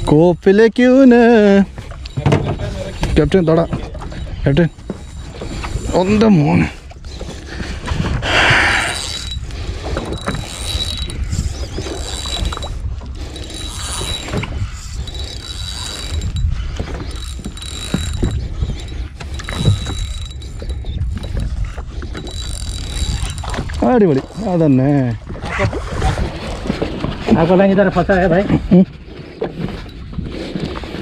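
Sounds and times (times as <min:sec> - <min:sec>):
fishing reel cranking: 0:00.0 - 0:28.5
thin high gear whine: 0:00.8 - 0:07.5, 0:08.2 - 0:25.2.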